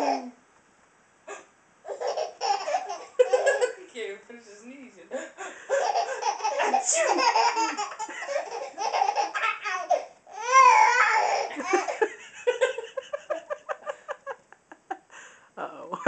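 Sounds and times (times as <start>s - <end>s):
baby laughing: 0.0s - 0.4s, 1.3s - 3.8s, 5.7s - 13.4s
baby squealing: 1.9s - 3.7s, 5.7s - 11.5s.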